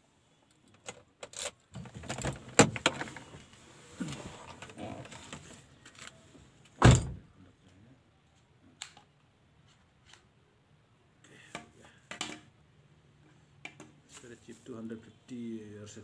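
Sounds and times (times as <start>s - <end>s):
car door thump: 6.8s - 7.2s.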